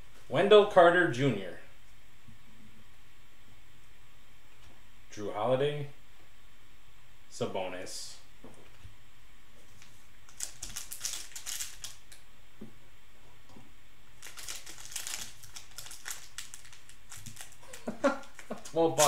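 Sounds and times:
plastic wrapper crinkling: 9.8 - 12.2, 14.2 - 19.0.

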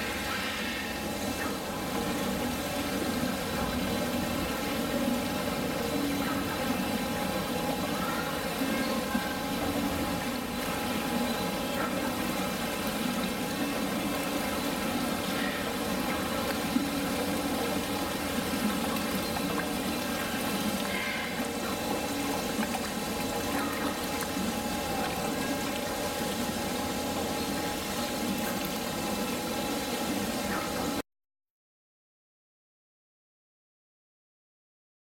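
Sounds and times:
machine hum: 0.0 - 31.0
running water rushing: 0.0 - 31.0.

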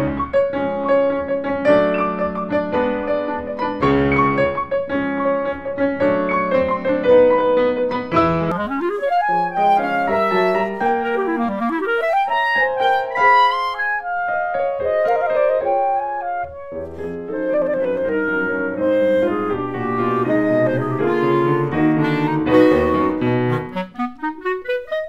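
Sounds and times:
piano chords: 0.0 - 25.0
clarinet melody: 8.4 - 25.0.

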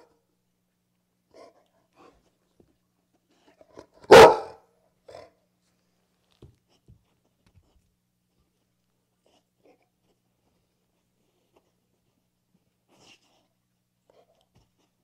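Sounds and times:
dog barking: 4.0 - 5.3.

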